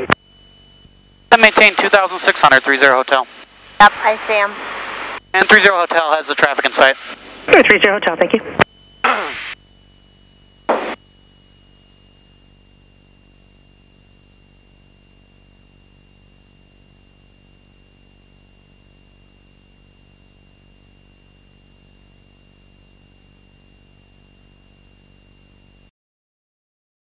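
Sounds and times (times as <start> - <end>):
faint high whine: 0.0 - 25.9
muffled aircraft engine drone: 0.0 - 25.9
static hiss: 1.3 - 7.8, 8.5 - 9.6, 10.6 - 11.0
radio squelch burst: 3.0 - 9.6, 10.7 - 11.0.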